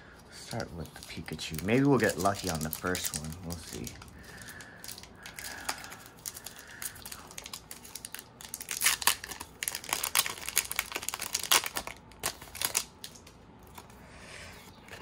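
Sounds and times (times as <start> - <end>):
foil wrapper crinkling and tearing: 0.1 - 13.9.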